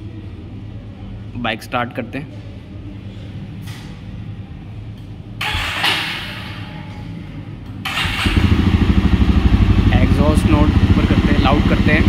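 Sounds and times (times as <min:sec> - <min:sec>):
motorcycle starter cranking: 0:05.4 - 0:06.1, 0:07.8 - 0:09.6
motorcycle engine running: 0:07.9 - 0:12.0.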